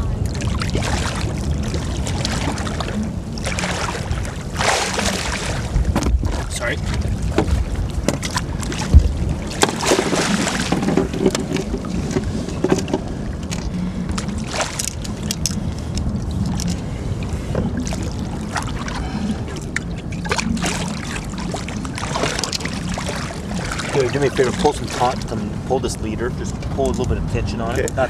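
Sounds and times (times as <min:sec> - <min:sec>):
steady low hum: 0:00.0 - 0:28.0
water and wind noise: 0:00.0 - 0:28.0
knocks on boat: 0:05.8 - 0:06.5, 0:07.3 - 0:13.1.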